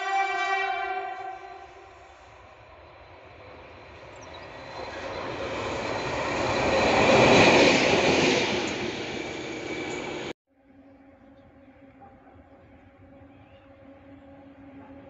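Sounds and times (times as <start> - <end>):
train passing on rails: 0.0 - 10.4.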